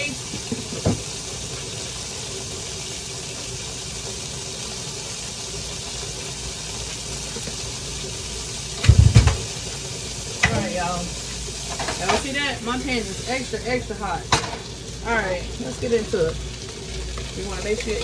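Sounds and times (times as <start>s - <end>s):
food sizzling in frying pan: 0.0s - 18.0s
loud low knocks and bumps: 8.8s - 9.6s.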